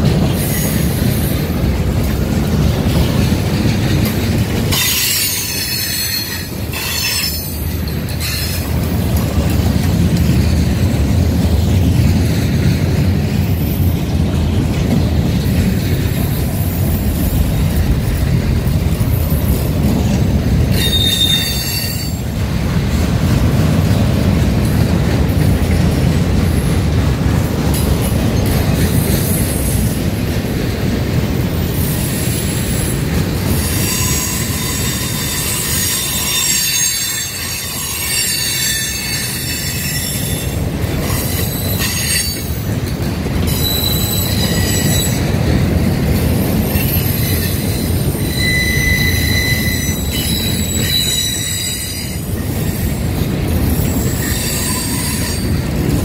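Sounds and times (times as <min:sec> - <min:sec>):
train wheels rumbling on rail: 0:00.0 - 0:56.0
high wheel squeals: 0:04.7 - 0:08.7, 0:20.7 - 0:22.3, 0:33.5 - 0:40.6, 0:43.4 - 0:45.4, 0:46.5 - 0:53.1, 0:53.7 - 0:55.7.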